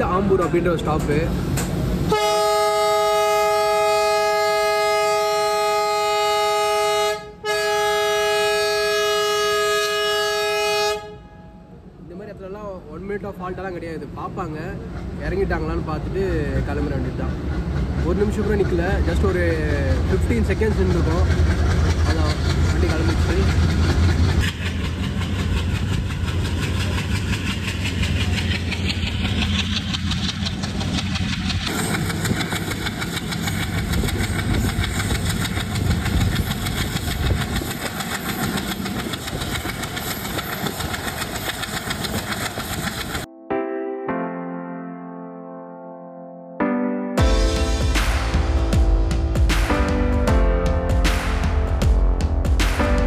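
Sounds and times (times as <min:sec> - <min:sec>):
diesel locomotive engine drone: 0:00.0 - 0:43.3, 0:47.2 - 0:53.0
locomotive air horn blast: 0:02.1 - 0:11.7.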